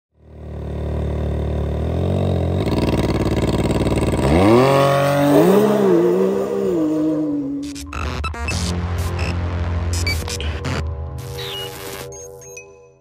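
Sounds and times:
engine revving through straight pipe: 1.8s - 7.6s.

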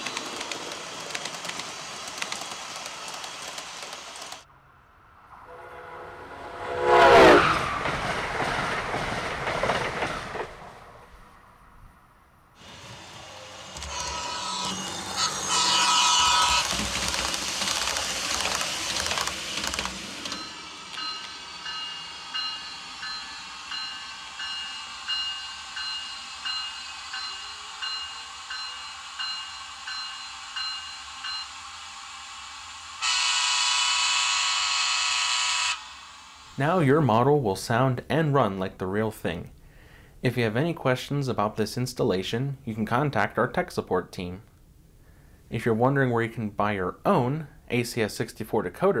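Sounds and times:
locomotive rushing run-up: 0.0s - 4.5s, 5.3s - 11.1s, 12.6s - 38.8s
long horn blast: 5.4s - 7.7s, 33.0s - 35.8s
bell ringing: 20.3s - 31.6s.

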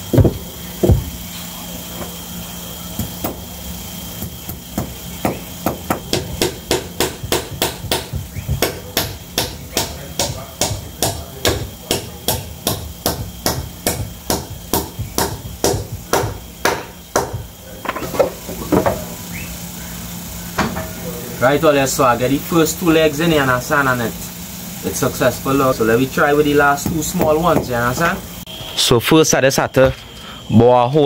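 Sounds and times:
hammer striking nails into wood: 4.2s - 18.0s.

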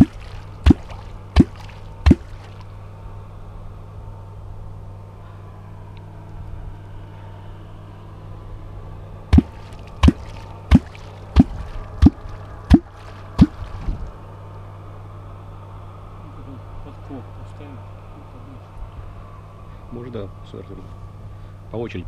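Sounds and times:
wooden lure smacking water: 0.0s - 2.7s, 9.4s - 13.9s.

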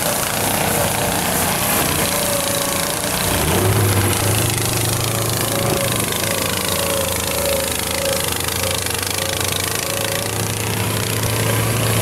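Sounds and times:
small engine running: 0.0s - 12.0s.

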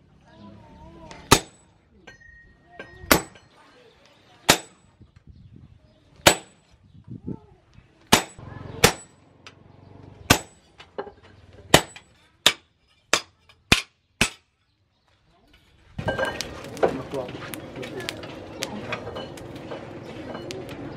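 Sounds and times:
hammer striking chisel on steel: 1.3s - 3.5s, 4.5s - 4.8s, 8.1s - 9.2s, 10.3s - 10.8s, 11.7s - 14.5s.

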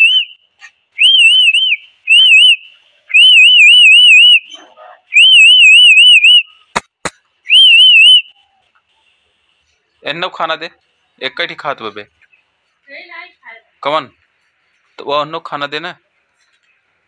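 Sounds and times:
warbling whistle blasts: 0.0s - 0.4s, 1.0s - 6.7s, 7.4s - 8.5s.

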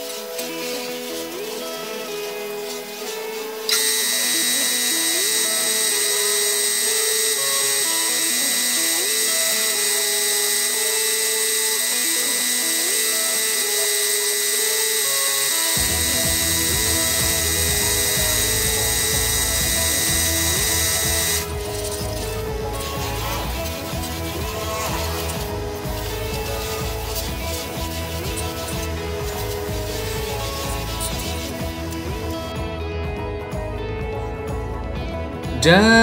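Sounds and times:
paint spray gun hissing: 0.0s - 32.6s
background music with bass beat: 15.8s - 36.0s.

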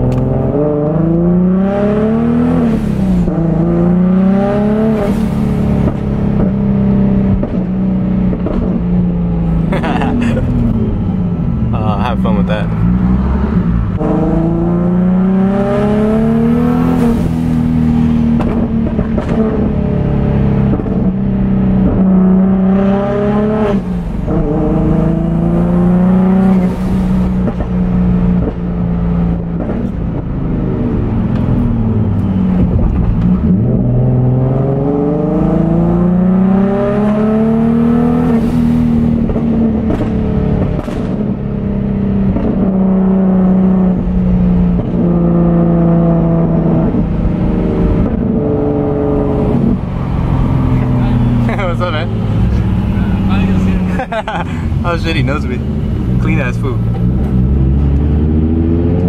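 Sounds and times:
car engine revving through gears: 0.0s - 59.0s.

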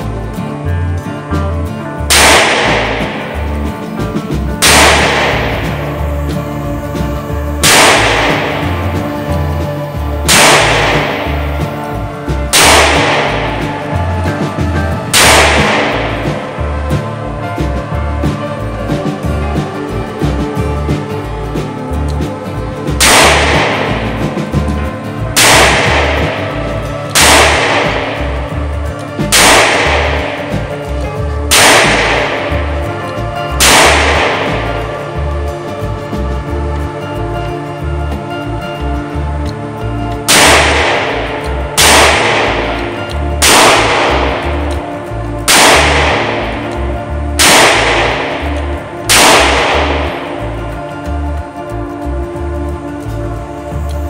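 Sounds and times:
background music with steady beat: 0.0s - 54.0s
revolver shots echoing indoors: 2.1s - 18.5s, 23.0s - 35.7s, 40.3s - 51.0s.

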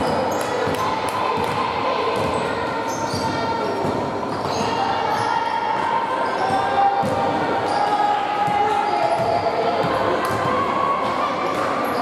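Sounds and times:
sneakers squeaking on floor: 2.2s - 10.6s.

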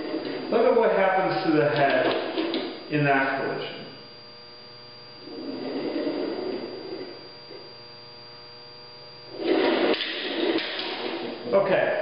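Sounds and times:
mains hum: 0.0s - 12.0s
cart rolling on track: 9.4s - 11.4s.

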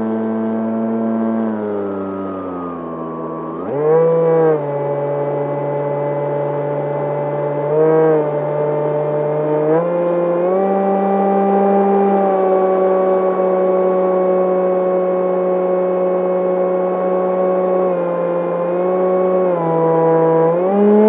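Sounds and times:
electric motor and propeller whine: 0.0s - 21.0s.

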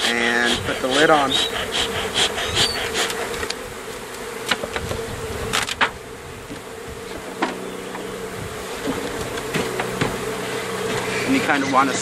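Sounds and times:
honeybees buzzing: 0.0s - 12.0s
sharp knocks: 8.8s - 11.1s.

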